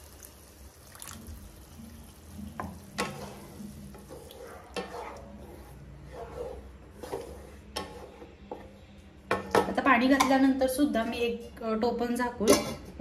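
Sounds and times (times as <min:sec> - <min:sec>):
light sizzle: 0:00.0 - 0:08.2
spatula scraping pan: 0:02.6 - 0:10.5.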